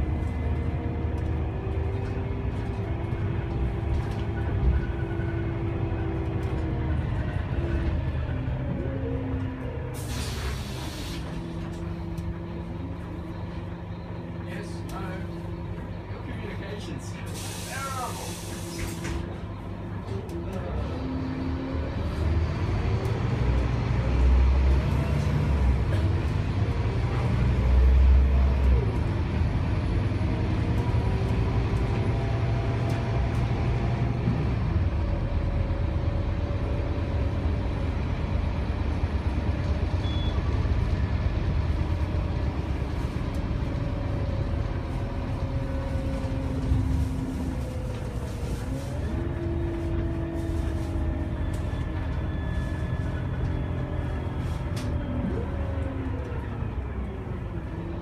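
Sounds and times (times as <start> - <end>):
bus diesel engine accelerating: 0.0 - 58.0
road rumble: 0.0 - 58.0.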